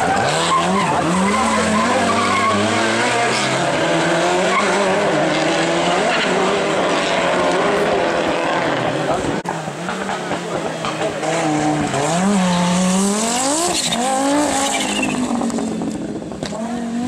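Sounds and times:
rally car engines revving: 0:00.0 - 0:17.0.

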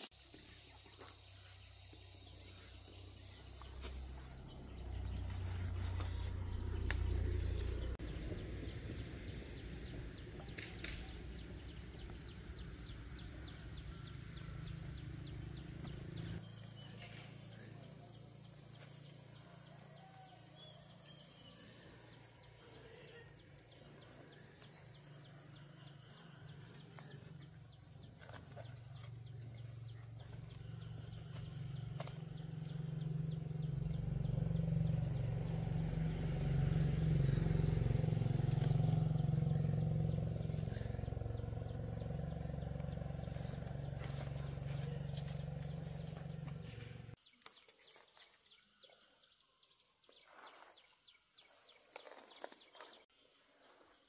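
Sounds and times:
low rumble: 0:02.4 - 0:16.4, 0:29.0 - 0:47.2.

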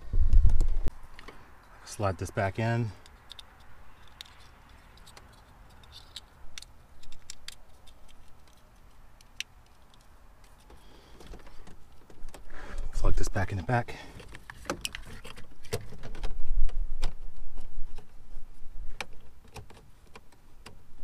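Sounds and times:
plastic connectors clicking: 0:03.0 - 0:12.4.

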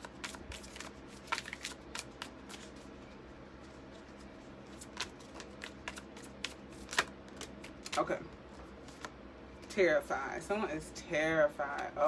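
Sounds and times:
cards being shuffled: 0:00.0 - 0:09.2.

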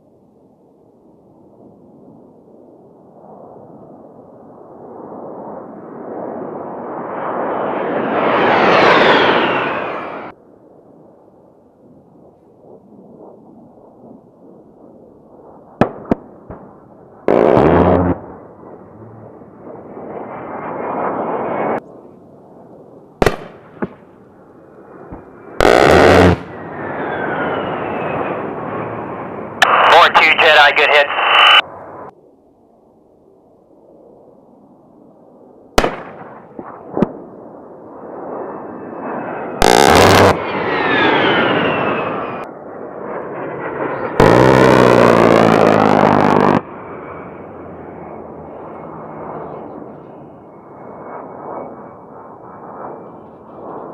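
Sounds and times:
jet engines rushing and whining: 0:05.7 - 0:10.5, 0:12.2 - 0:32.3, 0:35.8 - 0:53.9
rotary cannon firing: 0:25.2 - 0:26.5, 0:39.6 - 0:40.4, 0:44.2 - 0:46.6.

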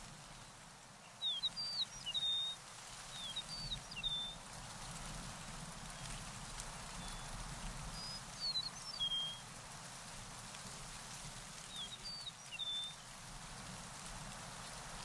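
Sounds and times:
bird singing high whistles: 0:01.2 - 0:02.6.

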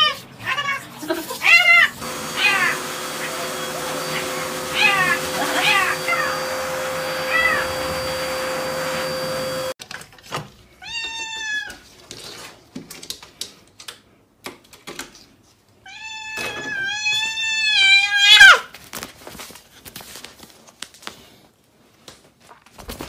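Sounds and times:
cat meowing: 0:00.0 - 0:08.4, 0:10.8 - 0:11.8, 0:15.9 - 0:18.7
cat long drawn-out meows: 0:02.3 - 0:02.8, 0:15.9 - 0:18.6.

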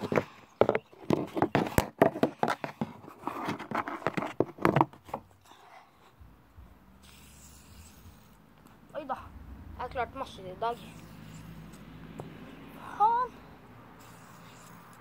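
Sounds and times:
phone handling knocks and scrapes: 0:00.0 - 0:05.3.

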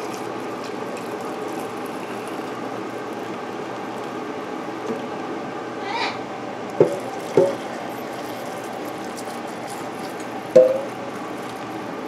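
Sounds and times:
hot water pouring into jars: 0:00.0 - 0:05.2, 0:06.8 - 0:12.0
glass jar clinks: 0:10.6 - 0:10.9.

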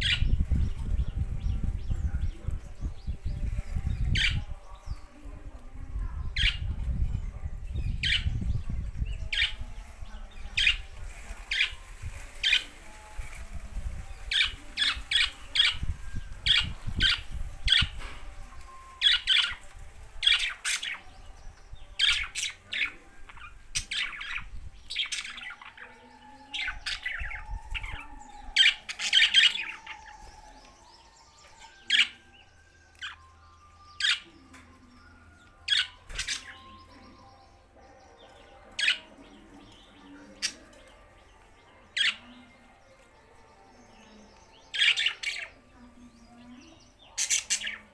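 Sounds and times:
budgerigars chirping: 0:06.4 - 0:12.9, 0:21.9 - 0:30.3, 0:31.4 - 0:34.3, 0:35.6 - 0:37.4, 0:41.9 - 0:42.4, 0:44.4 - 0:45.6, 0:46.3 - 0:47.9.

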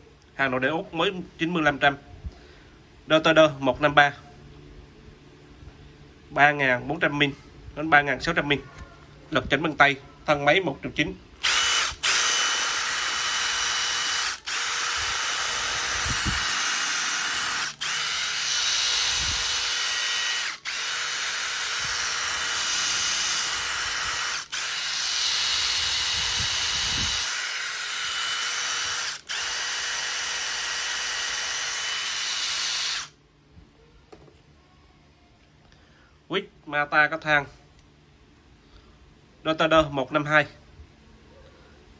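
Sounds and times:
impact driver motor spinning: 0:11.4 - 0:33.2.

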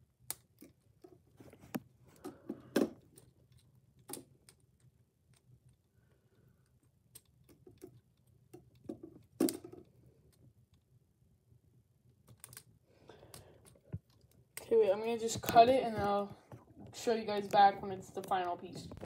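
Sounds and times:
plastic pieces clicking: 0:06.6 - 0:10.8, 0:12.2 - 0:14.7.

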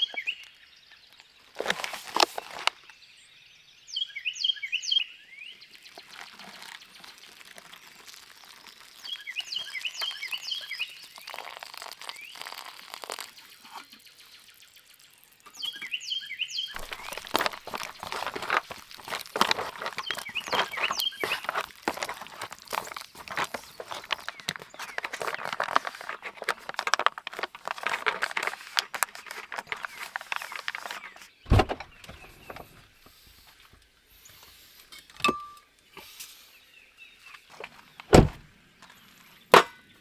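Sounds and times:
songbird chirping: 0:00.0 - 0:40.0
foil pouch crinkling: 0:01.3 - 0:02.9, 0:05.7 - 0:15.8, 0:16.7 - 0:31.3
hot water pouring into pouch: 0:01.5 - 0:02.7, 0:05.6 - 0:31.2.

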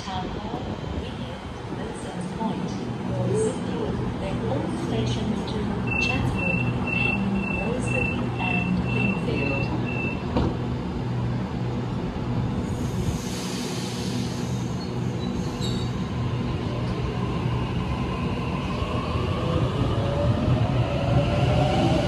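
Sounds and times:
hiss: 0:12.7 - 0:14.8.

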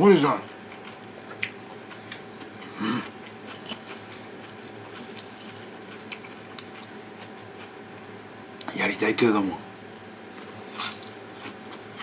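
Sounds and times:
steady low hum: 0:00.0 - 0:12.0
faint chewing: 0:00.4 - 0:07.8, 0:09.9 - 0:12.0.

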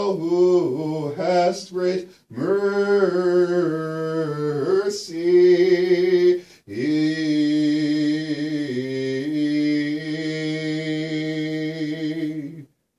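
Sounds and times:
man chanting: 0:00.0 - 0:12.7
quick breaths: 0:06.4 - 0:06.7.

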